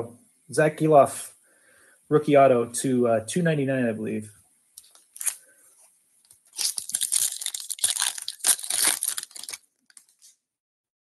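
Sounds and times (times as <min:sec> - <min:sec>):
wrapper tearing and crinkling: 0:04.8 - 0:05.4, 0:06.3 - 0:10.3.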